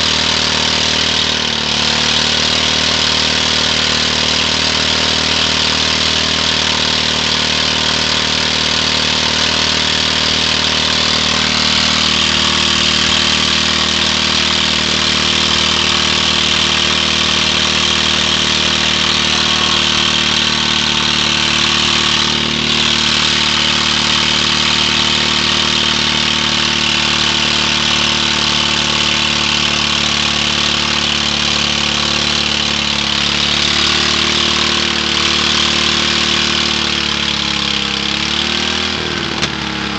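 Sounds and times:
lawn tractor engine running: 0.0s - 39.9s.

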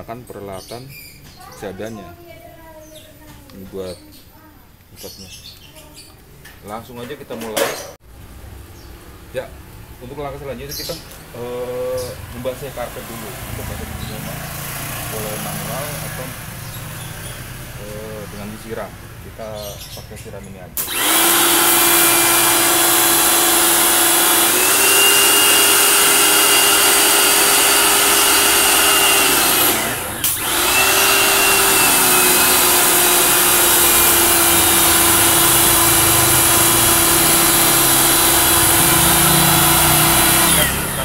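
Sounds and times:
pressure washer motor humming: 11.4s - 18.3s, 20.8s - 41.0s.

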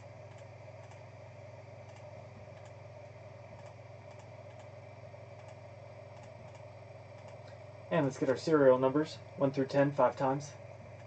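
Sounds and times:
steady low hum: 0.0s - 11.0s
mouse and keyboard clicks: 3.6s - 4.7s, 6.2s - 7.6s.

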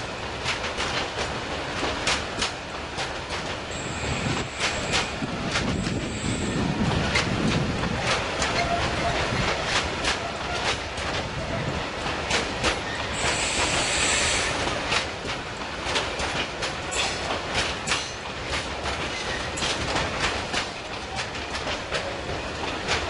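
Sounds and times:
train wheels clacking on rail joints: 0.0s - 23.0s
high train squeal: 3.6s - 15.0s, 16.8s - 23.0s.

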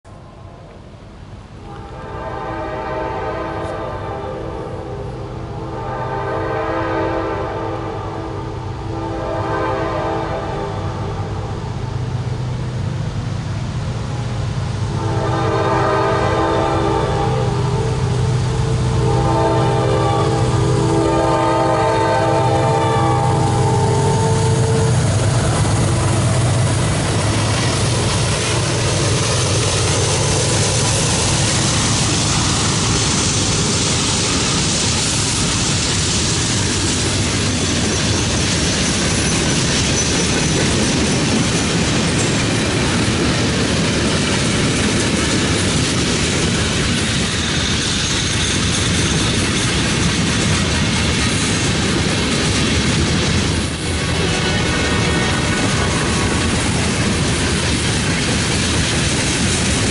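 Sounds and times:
diesel locomotive engines: 0.1s - 59.9s
locomotive horn chord: 1.6s - 11.6s, 14.9s - 27.1s, 54.0s - 55.8s
train wheels clacking on rails: 11.6s - 59.9s.

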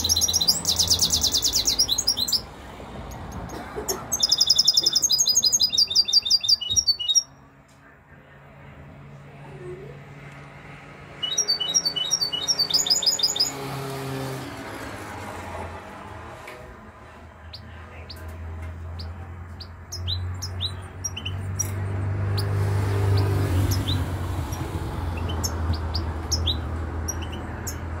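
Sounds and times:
goldfinch twittering and chirping: 0.0s - 7.3s, 11.2s - 13.7s, 17.4s - 28.0s.

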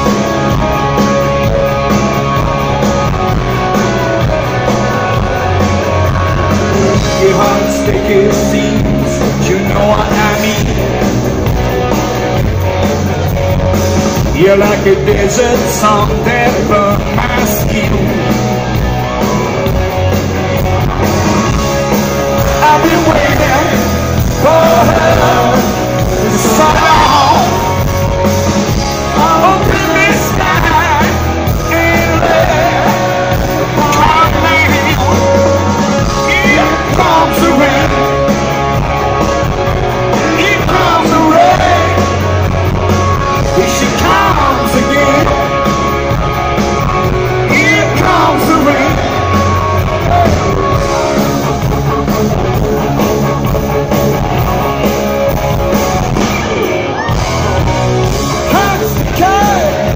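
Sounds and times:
hard rock band playing: 0.0s - 59.9s
man singing lead vocal: 6.2s - 11.4s, 14.2s - 18.4s, 22.5s - 27.9s, 29.0s - 38.4s, 39.9s - 45.8s, 47.1s - 50.7s, 58.5s - 59.9s.

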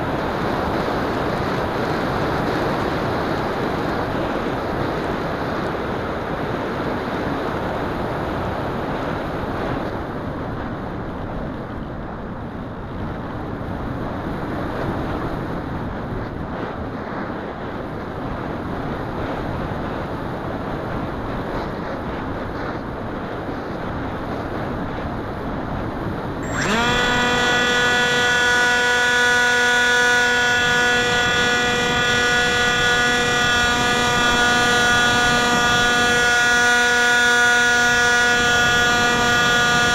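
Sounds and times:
wind rushing over microphone: 0.0s - 39.9s
electric motor whine: 26.4s - 39.9s.

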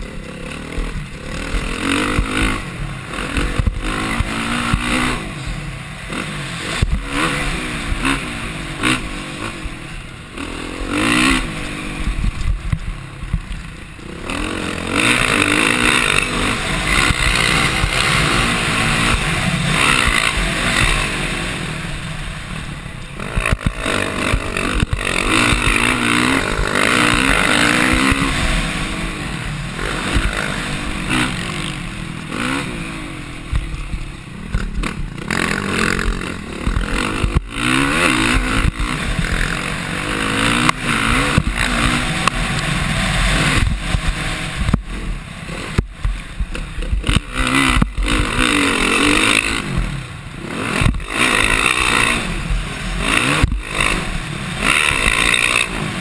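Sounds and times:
dirt bike engine revving: 0.0s - 56.0s
bike knocking and clattering: 3.2s - 5.2s, 33.5s - 42.4s
wind on microphone: 40.9s - 48.5s.

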